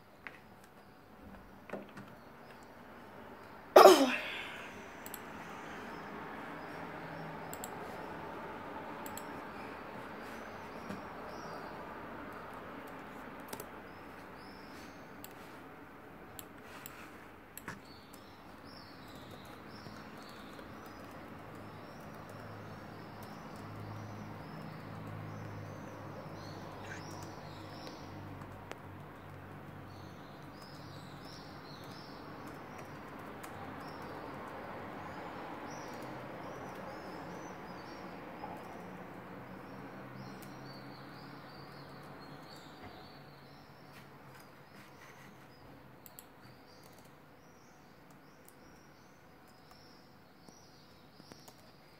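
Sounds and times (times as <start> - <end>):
keyboard clicks: 5.0 - 5.4, 7.4 - 7.8, 9.0 - 9.4, 12.2 - 14.3, 16.3 - 25.8, 26.8 - 34.6, 46.0 - 49.9, 51.2 - 51.8.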